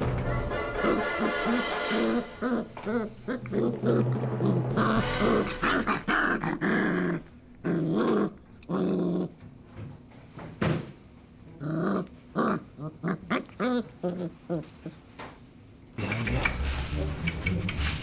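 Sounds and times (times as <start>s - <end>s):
puppies growling and yipping: 0.6s - 9.6s, 11.4s - 15.1s.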